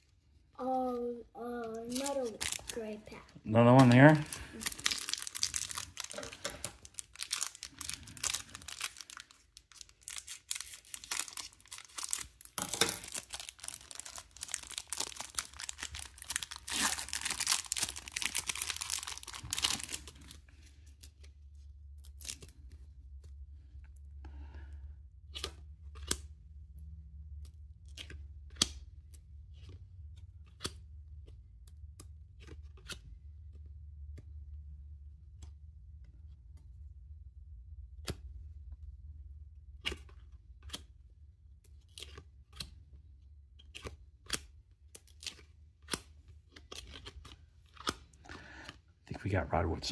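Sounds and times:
faint low hum: 0.0 - 49.9
foil wrapper ripped and crinkled: 1.9 - 2.8, 3.8 - 21.2.

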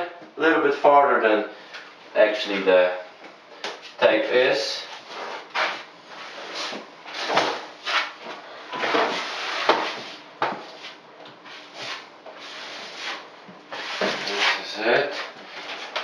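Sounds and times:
tool scraping membrane on board: 8.8 - 16.0.

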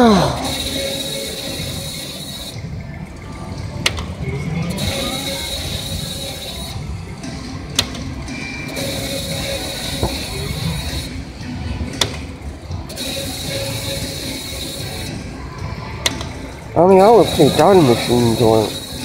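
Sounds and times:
machine tones and music: 0.0 - 19.0
spinning reels: 0.0 - 19.0
slot machine spin click: 8.7 - 11.1, 12.9 - 15.1, 16.0 - 19.0.

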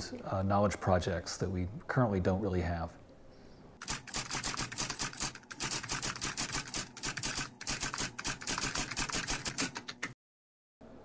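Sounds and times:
typewriter keys clacking: 3.8 - 10.2.

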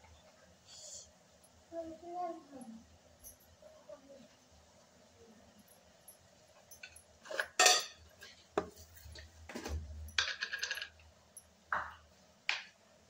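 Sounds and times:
spoon clinking on steel cookware: 6.8 - 8.0.

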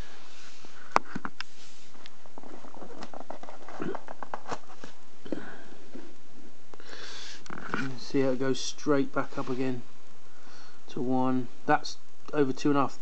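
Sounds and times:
handling clicks and rustles: 0.9 - 5.0.

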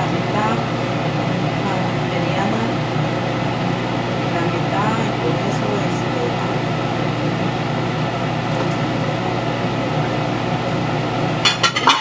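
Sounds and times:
steady mechanical hum: 0.0 - 12.0
glass plate clinking: 11.4 - 12.0.

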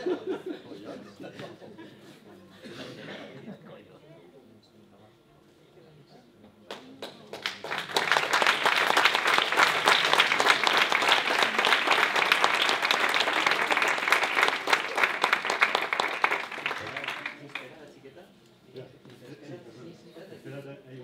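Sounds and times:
audience applauding: 7.0 - 17.8.

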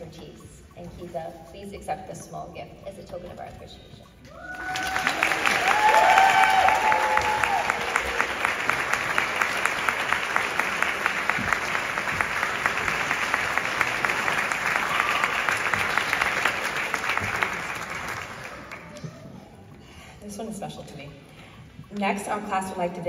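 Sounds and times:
audience applauding: 4.4 - 19.0.

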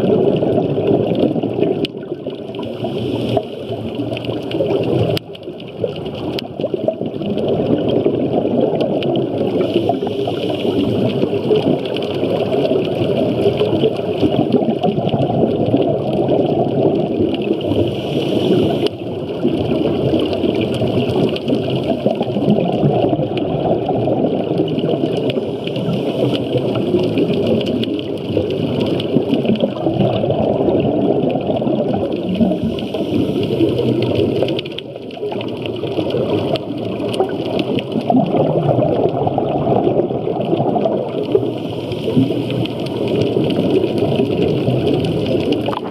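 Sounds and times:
muffled underwater water rush: 0.0 - 45.9.

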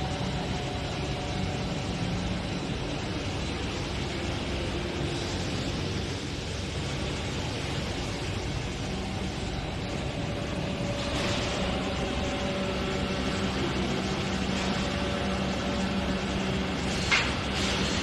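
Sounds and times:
hydraulic press humming: 9.0 - 18.0.

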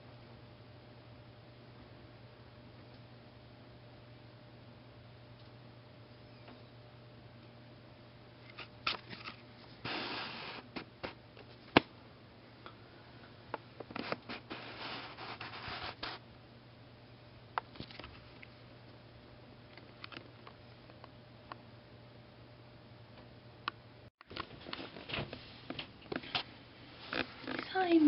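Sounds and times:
rubbing and scraping: 13.9 - 16.2.

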